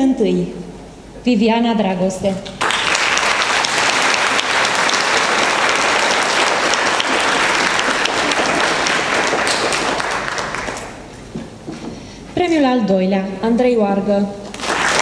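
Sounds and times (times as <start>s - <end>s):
crowd applauding: 2.6s - 11.1s, 14.5s - 15.0s.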